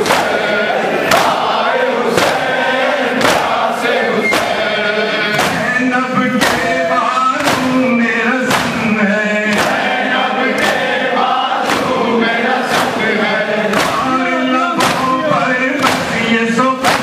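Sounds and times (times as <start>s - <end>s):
hands slapping chests: 0.0s - 0.5s, 1.1s - 1.5s, 2.1s - 2.6s, 3.2s - 4.7s, 5.3s - 5.8s, 6.4s - 7.9s, 8.5s - 10.9s, 11.6s - 16.2s
men chanting in unison: 0.0s - 17.0s.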